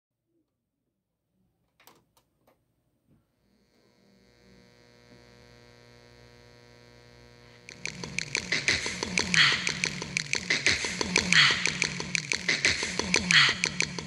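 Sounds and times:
droning chord: 6.9 - 14.0
electronic drum beat: 7.7 - 14.0.

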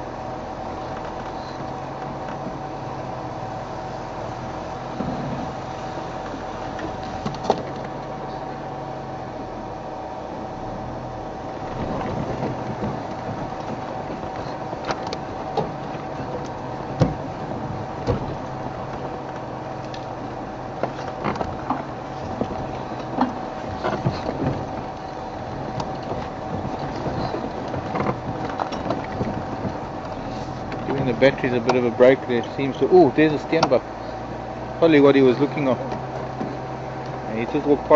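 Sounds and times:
vehicle engine humming: 0.0 - 37.9
knocks and clatters: 11.6 - 33.9.

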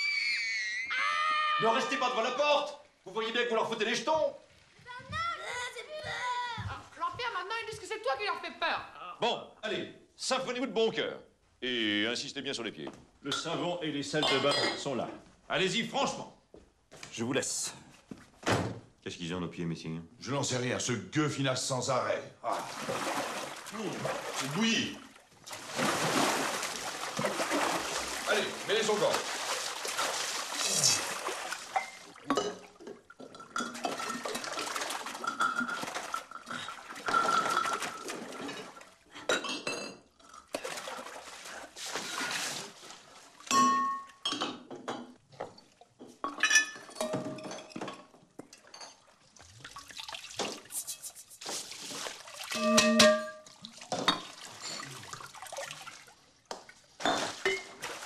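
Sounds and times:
liquid pouring into bathtub: 22.4 - 39.1, 40.2 - 43.6, 48.1 - 52.8, 53.4 - 58.0
glass bottles clinking: 31.7 - 34.5, 35.1 - 40.6, 43.5 - 45.2, 46.0 - 49.1, 52.5 - 54.9, 57.0 - 57.8.

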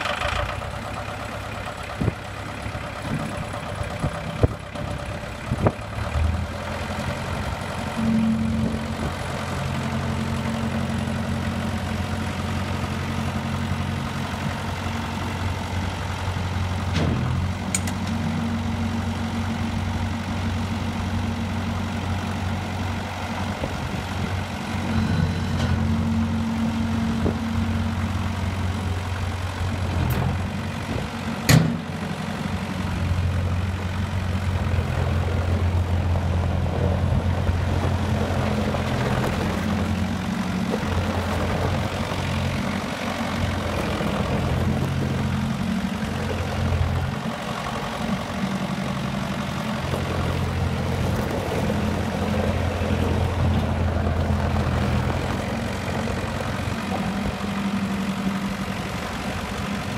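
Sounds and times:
loader engine running: 0.0 - 59.9
sharp engine knocks: 31.4 - 31.9.

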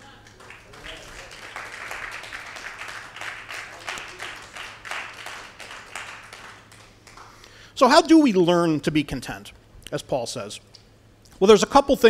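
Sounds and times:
congregation applauding: 0.0 - 7.6.

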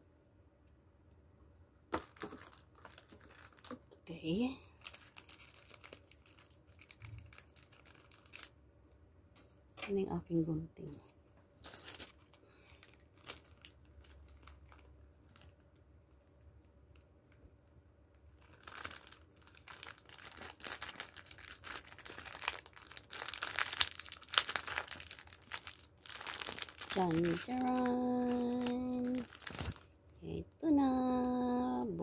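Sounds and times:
wrapper crinkling and tearing: 1.9 - 8.6, 11.6 - 17.4, 18.1 - 30.0.

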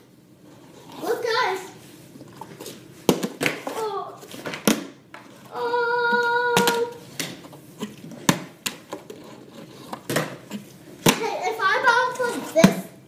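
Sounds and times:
child humming: 5.5 - 7.0.

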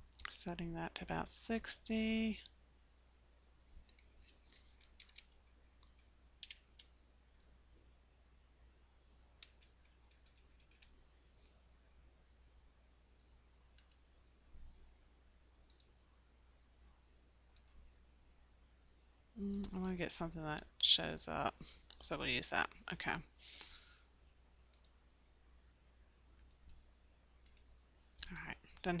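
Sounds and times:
low steady hum: 0.0 - 29.0
keyboard and mouse clicks: 3.8 - 7.5, 9.4 - 11.0, 13.8 - 14.0, 15.7 - 16.0, 17.5 - 17.8, 19.4 - 19.8, 24.7 - 25.0, 26.4 - 26.8, 27.4 - 29.0.

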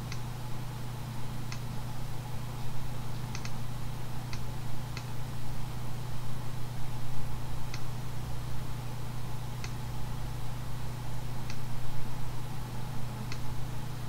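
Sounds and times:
low electrical hum: 0.0 - 14.0
computer mouse clicking: 3.3 - 3.6.

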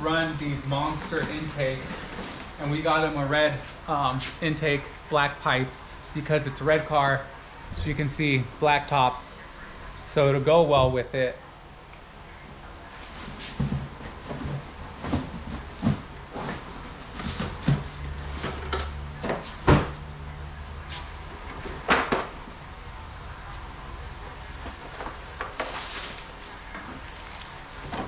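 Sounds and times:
cardboard boxes knocking and thudding: 13.2 - 20.0.

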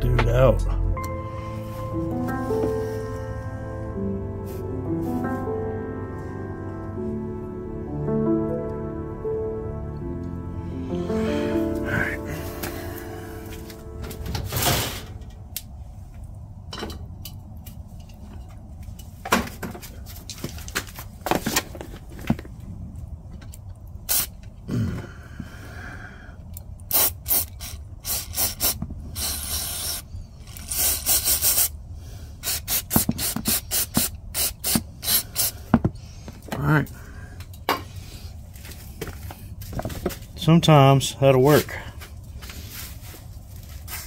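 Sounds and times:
aerosol spray hissing: 30.7 - 31.7.

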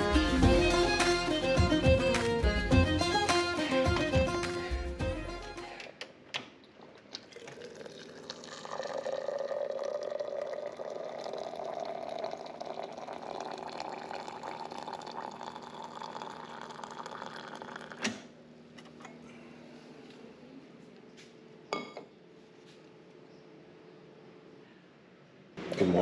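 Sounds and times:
liquid running into a container: 6.8 - 18.0.

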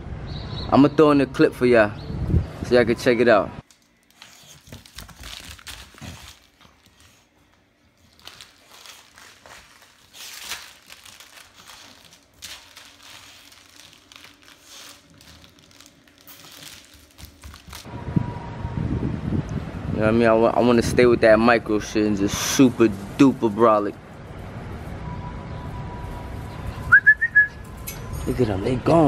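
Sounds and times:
plush toy crinkling: 3.6 - 17.9.

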